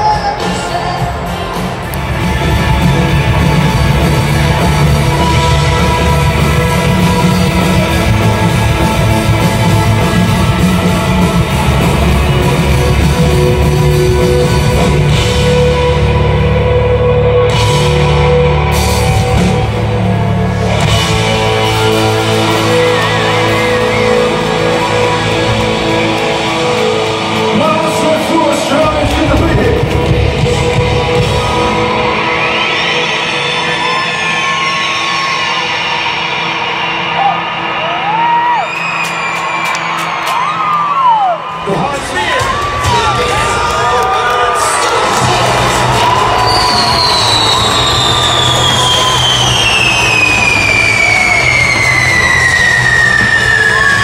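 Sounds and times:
person singing: 0:00.0 - 0:01.8
electric guitar: 0:00.0 - 0:36.4
drums: 0:00.0 - 0:54.0.

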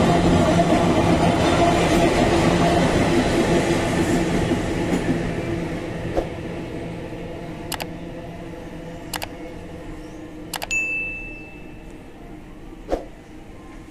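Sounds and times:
freight train rumbling on rails: 0:00.0 - 0:10.5
sharp double click: 0:07.7 - 0:07.9, 0:09.2 - 0:09.4, 0:10.6 - 0:10.8.

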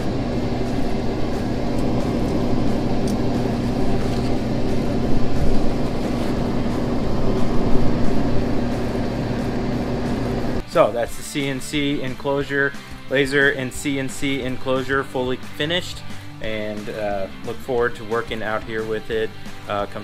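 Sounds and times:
air rushing through ducting: 0:00.0 - 0:11.5
exhaust fan humming: 0:00.0 - 0:20.0.

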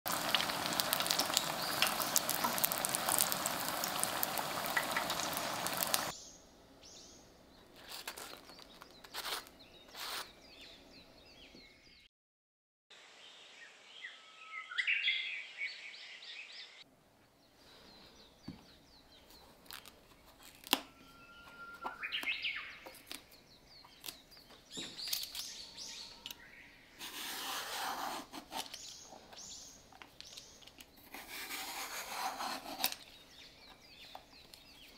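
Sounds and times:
oil sizzling deep-frying: 0:00.1 - 0:06.1
birds chirping: 0:00.1 - 0:12.1, 0:13.6 - 0:27.5, 0:28.5 - 0:31.5, 0:32.7 - 0:34.9
vegetable peeler scraping skin: 0:09.1 - 0:10.4.

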